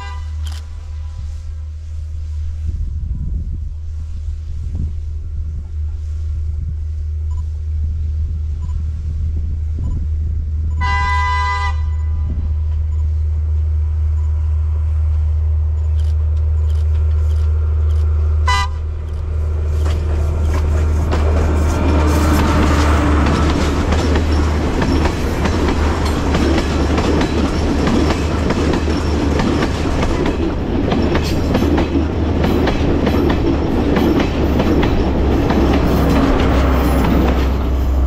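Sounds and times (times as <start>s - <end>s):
diesel train horn: 0.0s - 1.7s, 10.7s - 12.6s, 18.4s - 19.0s
train rumbling and clattering: 0.0s - 38.0s.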